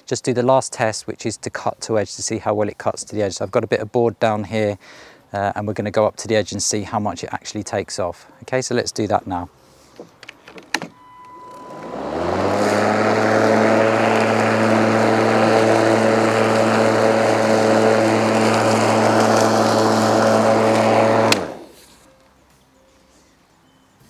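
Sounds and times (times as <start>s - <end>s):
electric lawn mower humming: 11.0s - 21.9s.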